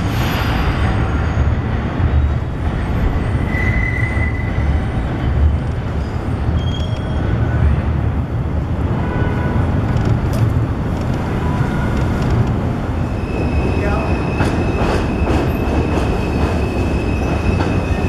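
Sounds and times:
high wheel squeal: 0.0s - 7.4s
train rumble: 0.0s - 18.0s.

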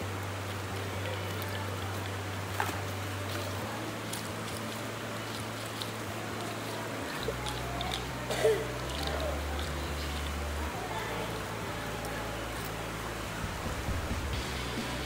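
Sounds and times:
stream rushing over pebbles: 0.0s - 15.0s
pebbles clicking together: 0.4s - 10.5s.

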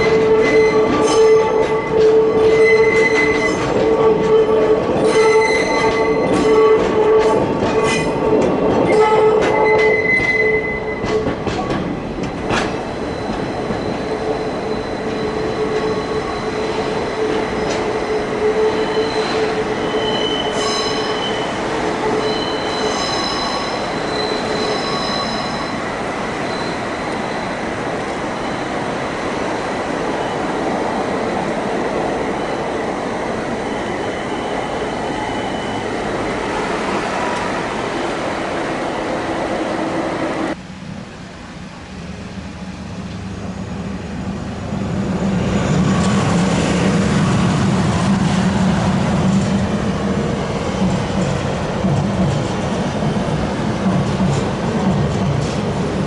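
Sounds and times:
high-pitched wheel squeal: 0.0s - 7.2s, 8.9s - 11.2s, 13.0s - 25.8s, 26.4s - 27.6s, 33.6s - 36.1s
subway train wheels rolling: 0.0s - 56.0s.

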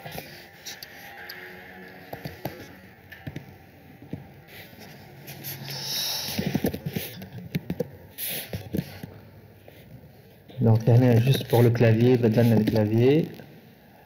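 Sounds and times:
short hissing noises: 8.2s - 8.6s.

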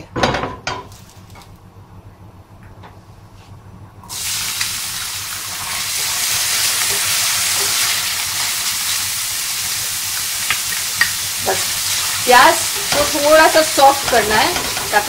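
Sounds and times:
onions sizzling in oil: 4.1s - 15.0s.

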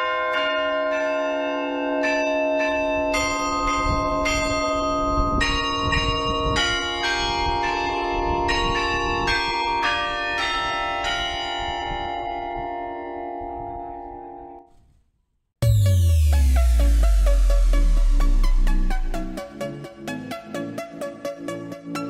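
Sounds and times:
church bells ringing: 0.0s - 14.6s.

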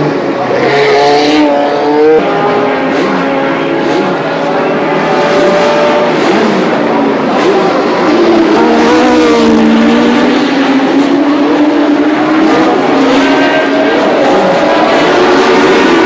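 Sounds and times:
race car engines: 0.0s - 16.0s.

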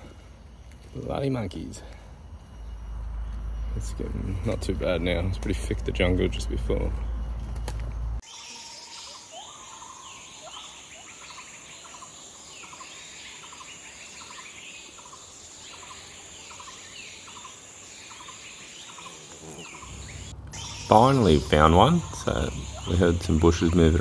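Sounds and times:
short rising bird calls: 8.2s - 23.3s
high-pitched insect drone: 14.2s - 24.0s.

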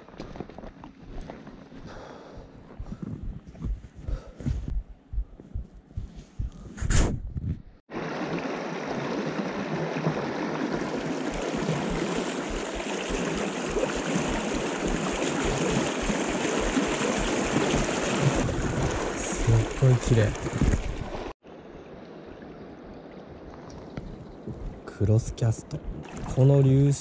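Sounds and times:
footsteps on grassy bank: 0.0s - 6.7s, 9.9s - 19.1s
river current rushing: 7.9s - 21.3s.

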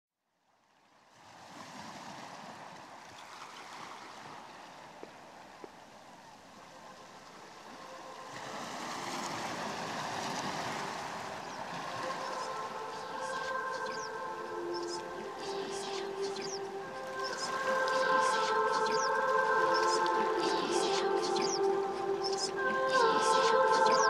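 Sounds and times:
ocean waves washing: 1.1s - 24.0s.

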